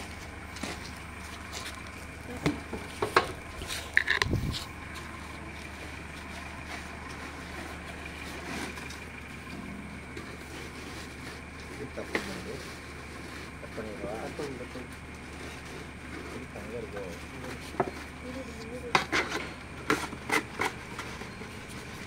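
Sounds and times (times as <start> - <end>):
steady low hum: 0.0 - 22.0
handling knocks and clicks: 0.5 - 5.6.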